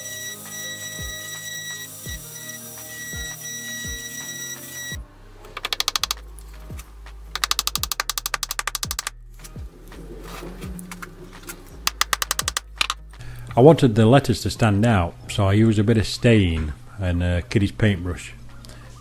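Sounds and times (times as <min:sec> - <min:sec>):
electronic music with kick drum: 0:00.0 - 0:05.0, 0:07.4 - 0:09.7, 0:11.9 - 0:13.1
rotary tool whining: 0:00.0 - 0:05.0
small hammer tapping pins: 0:05.6 - 0:06.2, 0:07.4 - 0:09.1, 0:11.9 - 0:13.0.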